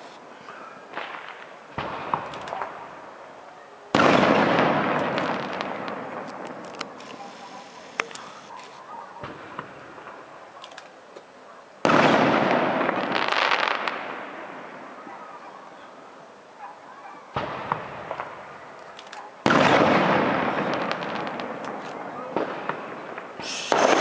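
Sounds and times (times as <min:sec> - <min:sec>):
small pops and crackles: 0:00.9 - 0:02.8, 0:05.0 - 0:11.3, 0:20.8 - 0:24.0
firework shells bursting: 0:19.4 - 0:24.0.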